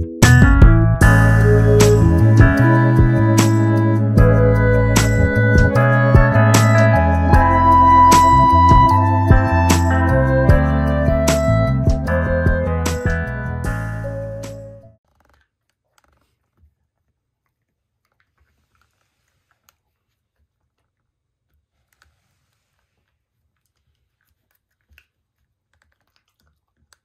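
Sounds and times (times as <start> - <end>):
background music: 0.0 - 15.0
dog gnawing chew stick: 15.1 - 27.0.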